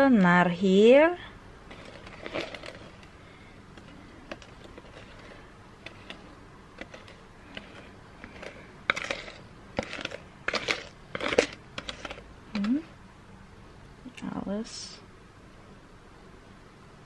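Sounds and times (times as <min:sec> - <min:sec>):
utensil scraping mixing bowl: 0:01.7 - 0:03.2, 0:03.8 - 0:12.3.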